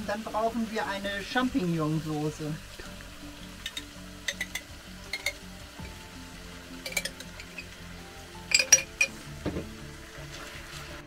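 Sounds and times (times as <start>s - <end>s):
metal spoon clinking on glass jar: 6.8s - 7.6s, 8.5s - 9.1s.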